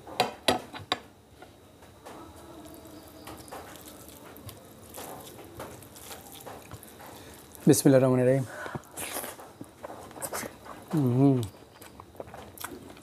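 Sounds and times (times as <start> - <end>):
hand squishing rice and curry: 2.6 - 8.0.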